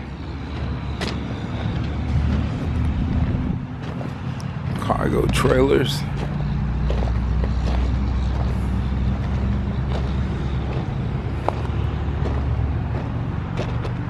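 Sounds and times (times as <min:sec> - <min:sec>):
vehicle engine idling: 0:00.0 - 0:14.0.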